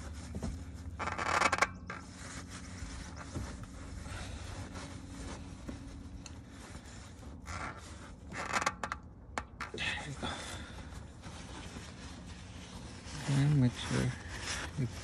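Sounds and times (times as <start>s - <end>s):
rags rubbing and scraping engine: 0.0s - 15.0s.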